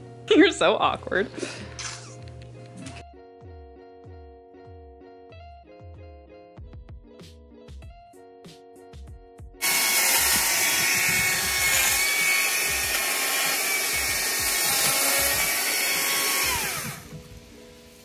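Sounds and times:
chainsaw cutting log: 9.6s - 17.3s.

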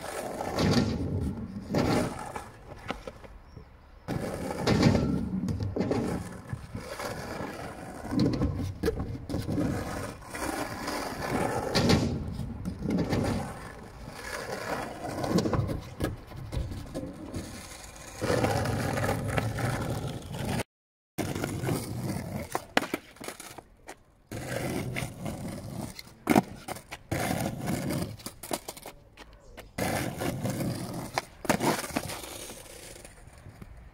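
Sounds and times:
skateboard scraping: 0.0s - 33.9s
skateboard wheels rolling on asphalt: 0.0s - 33.9s
skateboard clacks: 21.2s - 33.9s.

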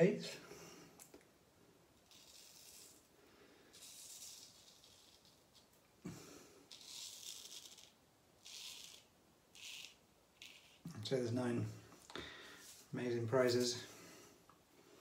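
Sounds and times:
straight razor scraping stubble: 2.0s - 3.0s, 6.7s - 11.2s.

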